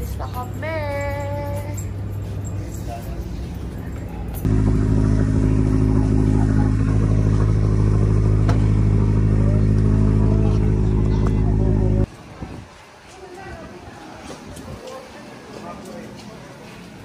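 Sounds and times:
ferry engine hum: 0.0 - 12.1.

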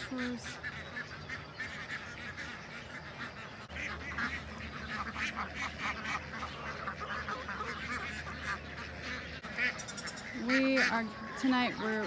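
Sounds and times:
ducks quacking and honking: 0.0 - 12.0.

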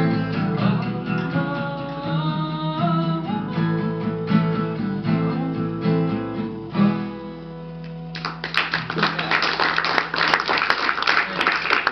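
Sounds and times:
fingerpicked acoustic guitar: 0.0 - 9.2
audience applause: 8.2 - 11.9.

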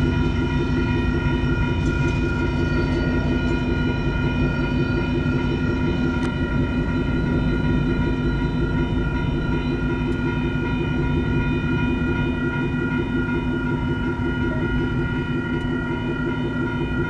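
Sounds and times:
diesel locomotives rumbling: 0.0 - 17.0
railroad crossing bell ringing: 0.0 - 17.0.

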